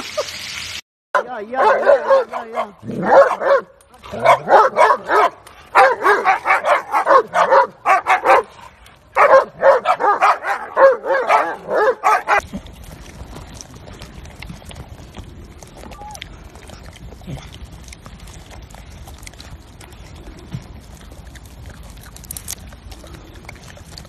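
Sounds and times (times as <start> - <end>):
husky barking and yowling: 1.2 - 12.4.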